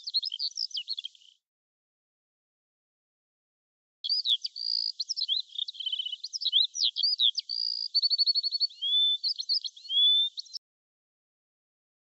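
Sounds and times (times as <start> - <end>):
songbird singing: 0.0 - 1.4, 4.0 - 10.6.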